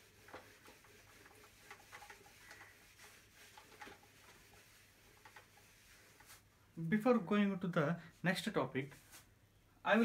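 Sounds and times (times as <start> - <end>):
duster wiping whiteboard: 0.0 - 6.6, 8.8 - 9.3.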